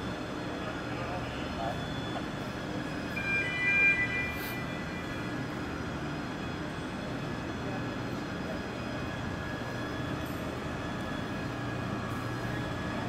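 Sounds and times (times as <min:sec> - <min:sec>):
high electronic tone: 0:03.1 - 0:05.4.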